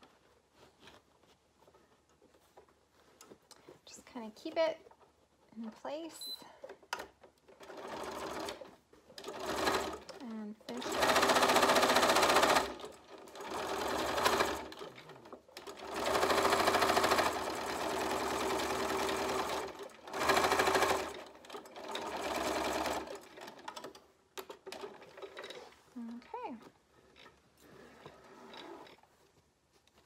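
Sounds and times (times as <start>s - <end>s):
sewing machine stitching: 7.0s - 25.8s.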